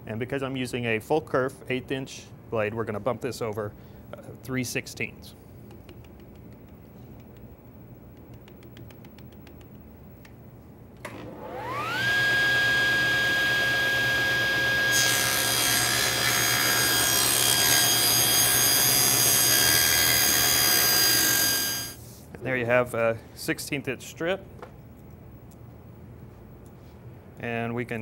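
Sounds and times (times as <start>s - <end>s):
faint clicks: 5.7s - 10.4s
table saw motor whining: 11.1s - 22.0s.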